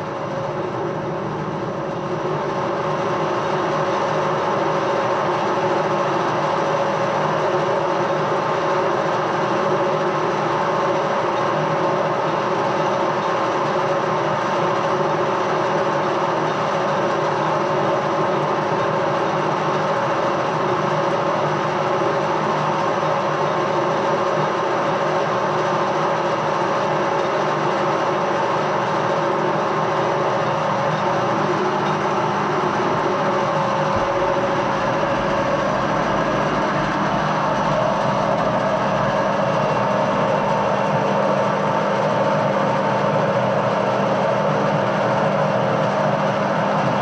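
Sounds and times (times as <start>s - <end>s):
lathe whine: 0.0s - 47.0s
lathe motor hum: 25.4s - 47.0s.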